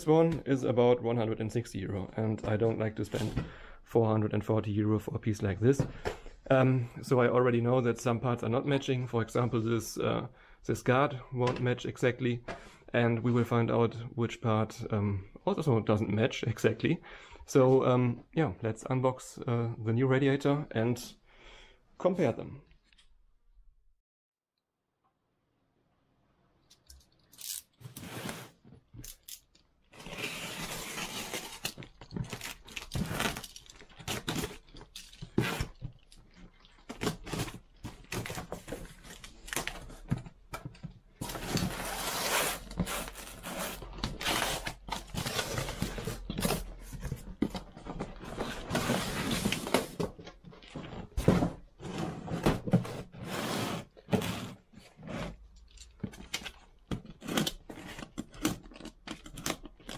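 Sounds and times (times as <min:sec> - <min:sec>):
cardboard scraping and rustling: 0:41.2 - 0:55.4.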